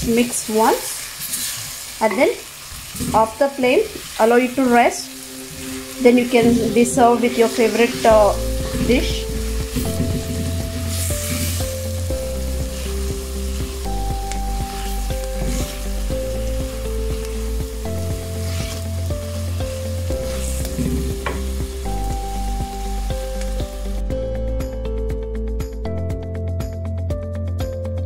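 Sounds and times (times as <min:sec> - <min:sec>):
food sizzling in a clay pot: 0:00.0 - 0:24.1
wooden spatula scraping: 0:02.8 - 0:03.4, 0:05.6 - 0:12.0, 0:12.6 - 0:13.1, 0:14.6 - 0:21.6
background music with bass: 0:05.0 - 0:28.0.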